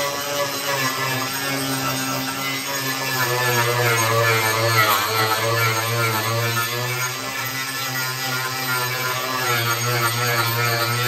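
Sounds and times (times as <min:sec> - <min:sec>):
angle grinder cutting wood: 0:00.0 - 0:11.0.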